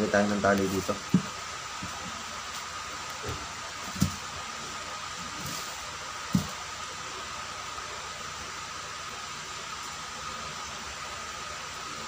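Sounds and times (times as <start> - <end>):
electric fan whirring: 0.0 - 12.0
soft knocks handling nylon cord: 0.6 - 2.1, 3.2 - 4.2, 5.4 - 6.6.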